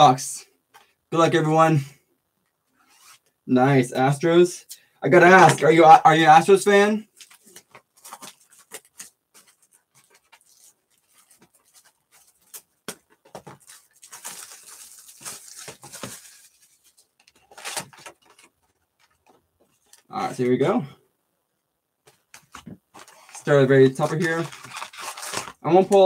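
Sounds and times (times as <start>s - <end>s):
plastic wrap crinkling and tearing: 7.1s - 20.0s, 23.0s - 26.0s.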